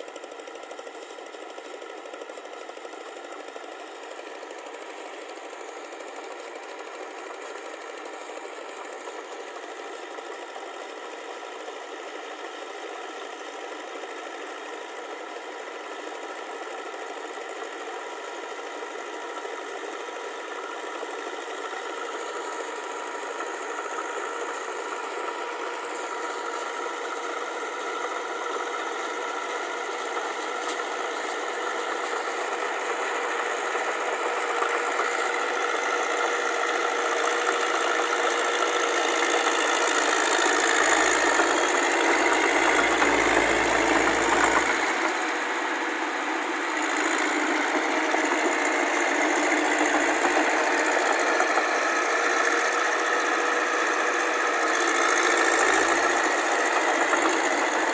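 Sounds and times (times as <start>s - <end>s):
tractor diesel engine running: 16.8s - 57.9s.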